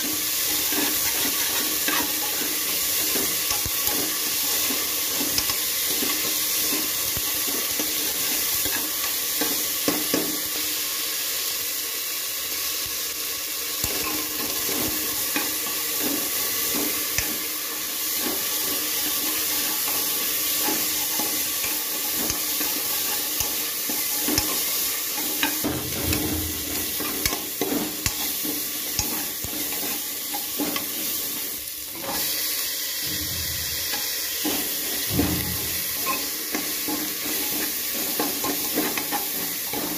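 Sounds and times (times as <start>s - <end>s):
metal spoon scraping a pan: 0.0s - 10.2s, 18.0s - 32.4s, 33.1s - 39.9s
potatoes sizzling in a pan: 0.0s - 39.9s.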